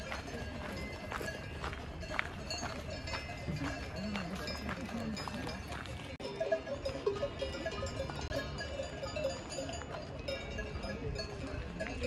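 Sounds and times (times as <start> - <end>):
livestock bells clanking: 0.0 - 12.0.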